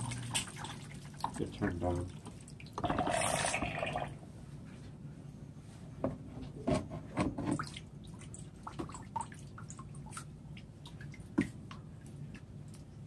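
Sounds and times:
water trickling and dripping: 0.0 - 2.8, 7.6 - 13.0
low steady hum: 0.0 - 13.0.

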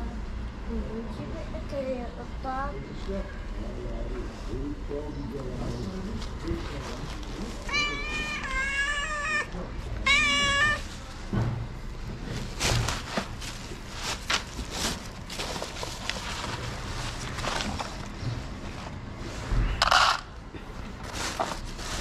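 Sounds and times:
plastic bag rustling: 5.6 - 20.1, 21.0 - 22.0
cat meowing: 7.7 - 11.0.

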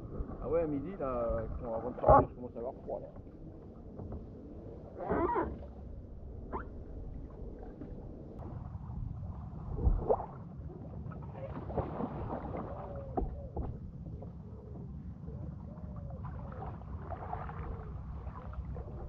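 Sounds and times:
low wind rumble on microphone: 0.0 - 19.0
paddle splashing water: 11.1 - 14.3, 16.2 - 19.0.

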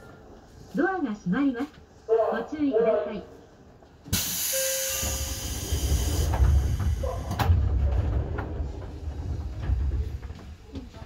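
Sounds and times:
low rumble: 6.3 - 11.0.

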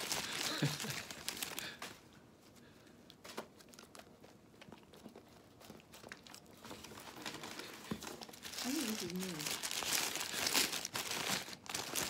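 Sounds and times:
paper wrapper crinkling: 0.0 - 2.0, 3.2 - 12.0
dog chewing and lip smacking: 3.5 - 6.9.

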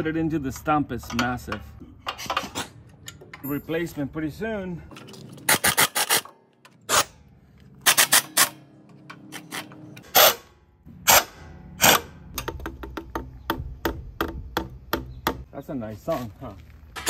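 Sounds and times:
impact wrench bursts: 7.8 - 8.6.

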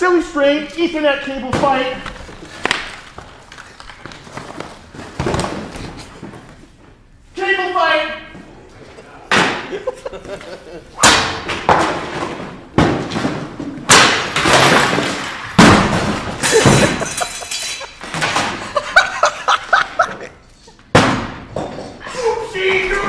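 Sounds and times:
objects crashing on floor: 1.5 - 6.6, 11.0 - 18.8, 20.9 - 22.0
people laughing: 8.8 - 11.0, 16.4 - 20.8.

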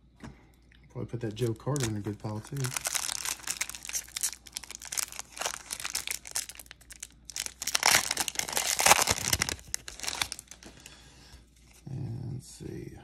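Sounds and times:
foil wrapper crinkling and tearing: 1.2 - 10.9.

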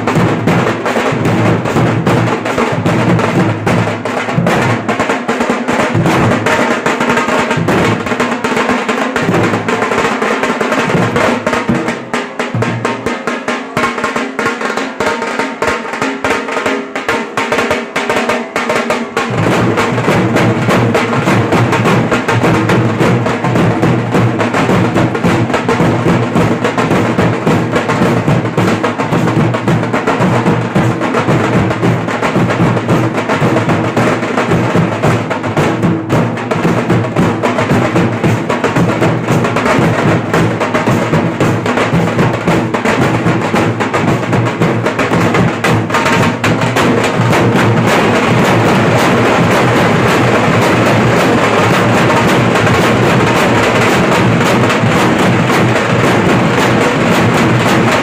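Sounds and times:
dhol drums beaten fast: 0.0 - 58.0.

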